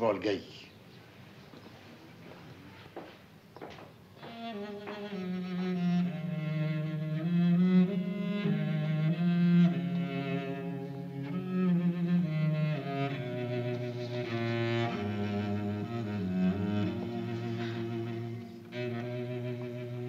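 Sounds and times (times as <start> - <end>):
bowed strings film score: 4.2 - 20.0.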